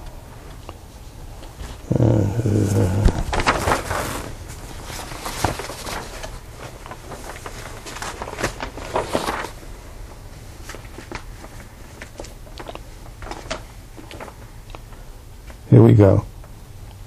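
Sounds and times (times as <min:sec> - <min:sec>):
man humming: 0:01.8 - 0:03.5
paper rustling: 0:02.4 - 0:09.7, 0:10.3 - 0:15.0.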